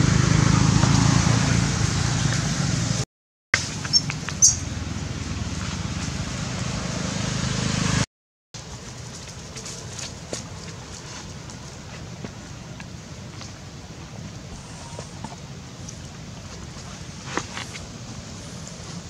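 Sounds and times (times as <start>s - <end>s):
low mechanical rumble with hiss: 10.8s - 19.0s.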